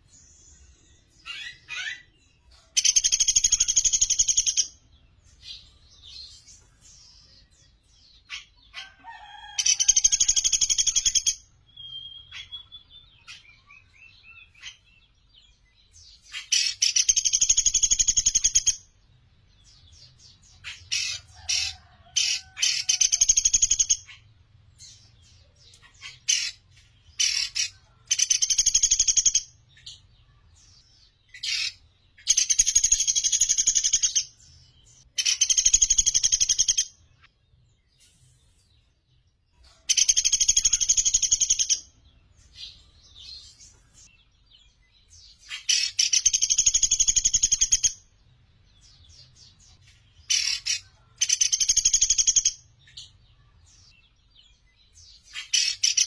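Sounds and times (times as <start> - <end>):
woodpecker trilling: 1.2 - 4.8, 20.6 - 24.2, 25.6 - 29.5, 31.3 - 34.3, 35.1 - 36.9, 39.9 - 42.0, 45.4 - 48.0, 50.3 - 52.6, 55.2 - 56.0.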